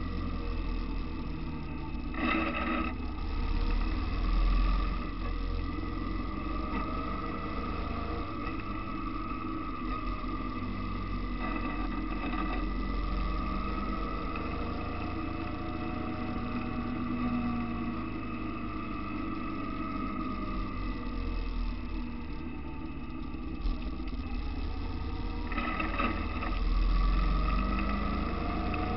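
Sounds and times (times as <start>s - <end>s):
motorcycle engine running: 0.0s - 28.9s.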